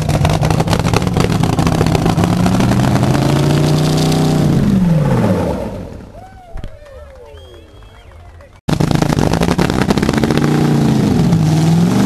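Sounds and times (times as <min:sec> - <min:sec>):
dragster engine running choppily: 0:00.0 - 0:04.4, 0:08.7 - 0:11.8.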